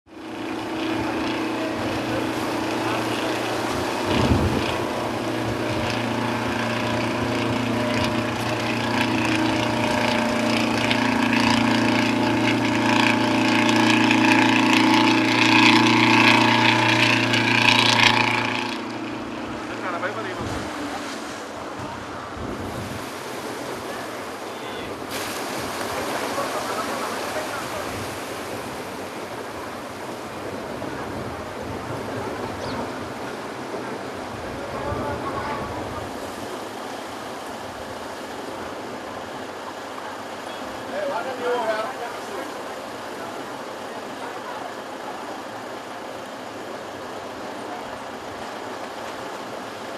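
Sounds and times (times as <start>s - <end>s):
boat engine droning: 0.0s - 49.9s
wind: 0.0s - 49.9s
choppy waves splashing: 0.1s - 49.9s
rush of water: 0.1s - 49.9s.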